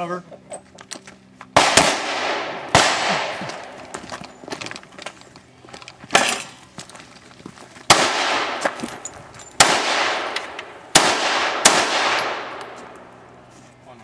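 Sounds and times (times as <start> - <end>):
handgun shots with echo: 1.6 - 3.7, 9.6 - 12.6.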